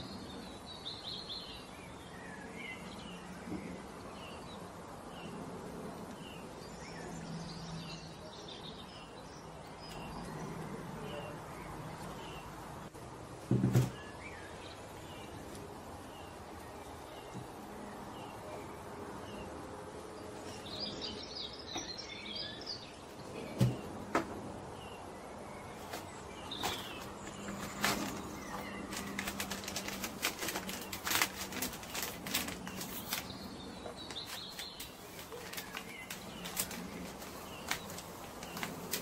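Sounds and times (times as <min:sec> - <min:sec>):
clicks taps and rustles: 0:25.8 - 0:39.0.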